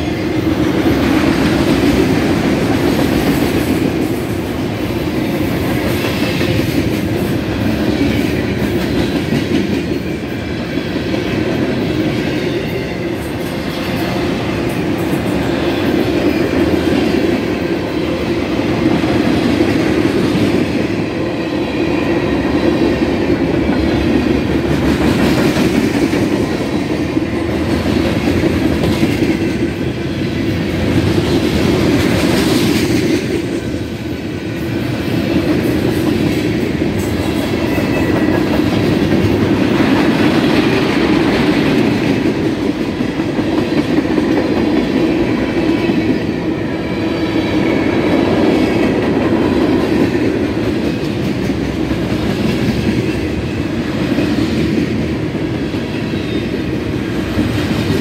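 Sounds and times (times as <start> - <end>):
freight train wheels rumbling: 0.0 - 58.0.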